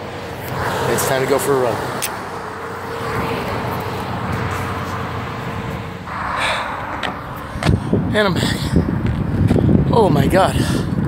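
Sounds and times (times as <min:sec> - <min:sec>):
vehicle passing close: 0:00.0 - 0:09.8
highway traffic hiss: 0:00.0 - 0:11.0.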